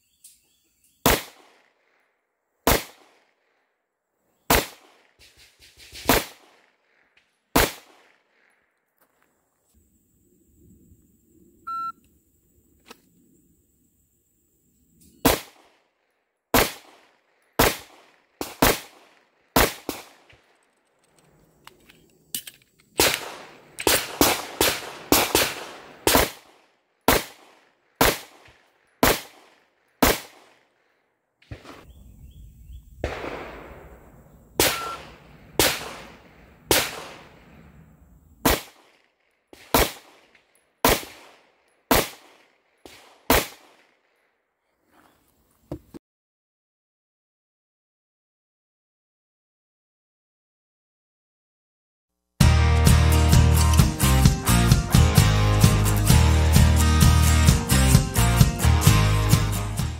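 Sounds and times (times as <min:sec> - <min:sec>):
pistol gunshots: 0:01.0 - 0:02.0, 0:02.6 - 0:03.4, 0:04.5 - 0:08.6, 0:15.2 - 0:15.8, 0:16.5 - 0:20.4, 0:23.0 - 0:30.7, 0:33.0 - 0:37.7, 0:38.4 - 0:44.0
short beep: 0:11.7 - 0:12.0, 0:34.7 - 0:35.1.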